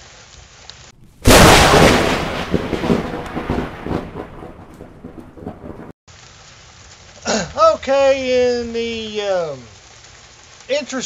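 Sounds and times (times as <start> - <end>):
thunderclap with rumbling tail: 0.9 - 5.9.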